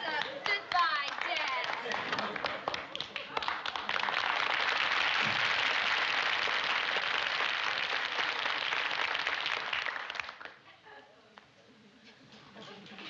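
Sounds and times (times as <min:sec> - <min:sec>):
audience applauding: 0:00.0 - 0:10.6.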